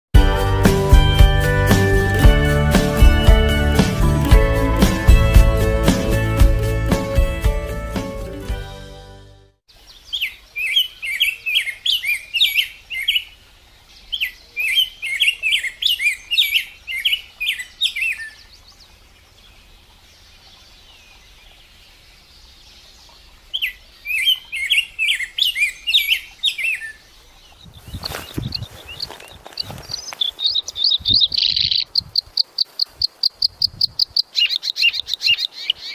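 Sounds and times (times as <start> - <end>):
bird singing warbled phrases: 9.7 - 35.9.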